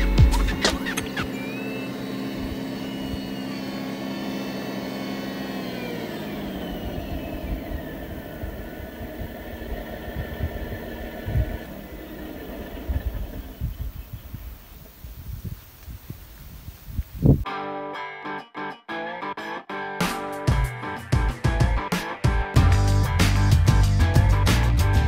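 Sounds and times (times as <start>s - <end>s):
model tractor engine running: 0.0s - 15.1s.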